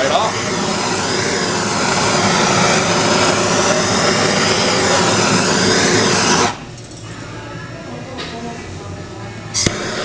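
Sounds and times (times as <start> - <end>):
blowtorch flame rushing: 0.0 - 6.6, 9.6 - 10.0.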